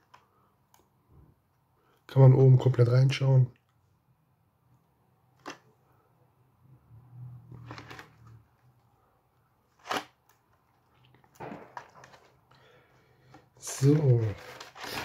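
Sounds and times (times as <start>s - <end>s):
sharp plastic crackle: 9.7s - 12.8s, 13.6s - 15.0s
plastic blister packs rustling: 11.0s - 12.8s, 13.5s - 15.0s.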